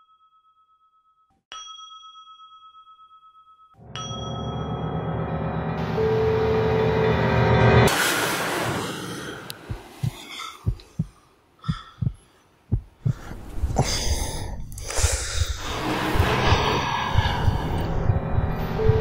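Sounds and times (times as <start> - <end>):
rush of noise: 5.8 - 10.2, 13.2 - 19.0
heartbeat thumps: 9.6 - 19.0.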